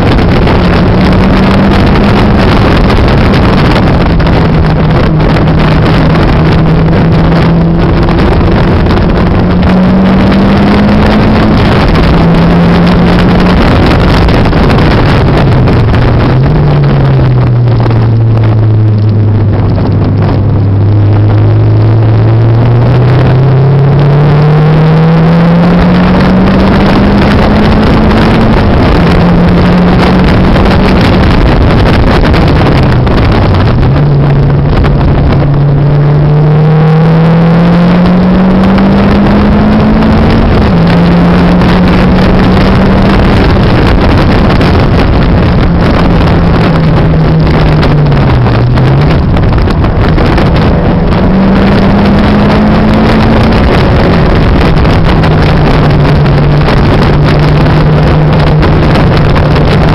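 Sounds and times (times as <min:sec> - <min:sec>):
car engine revving through gears: 0:00.0 - 0:59.9
loud rushing noise: 0:00.0 - 0:59.9.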